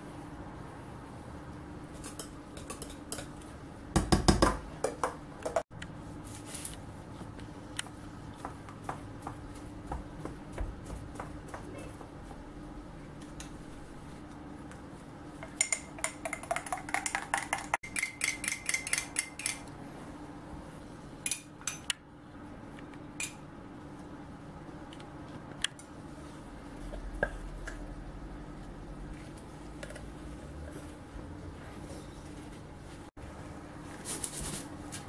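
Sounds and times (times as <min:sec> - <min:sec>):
metal spoon clinking against glass: 0:15.6 - 0:19.6.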